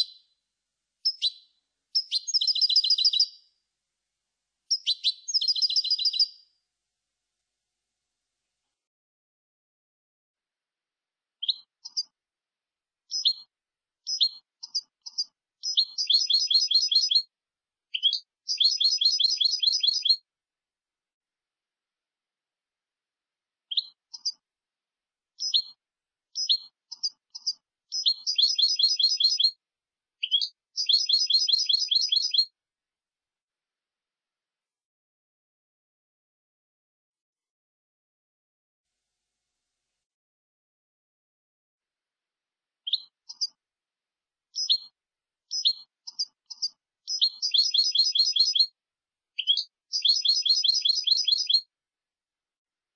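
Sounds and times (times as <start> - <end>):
goldfinch singing: 0.0 - 0.2, 1.0 - 3.4, 4.7 - 6.4, 11.4 - 12.1, 13.1 - 17.3, 17.9 - 20.2, 25.4 - 25.8, 26.4 - 29.6, 30.2 - 32.5, 42.8 - 43.6, 44.6 - 48.7, 49.4 - 51.7.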